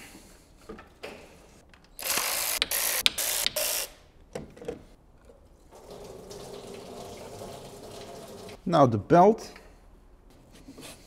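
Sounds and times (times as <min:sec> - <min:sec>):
power tool spinning out bolt: 0:02.0 - 0:04.0.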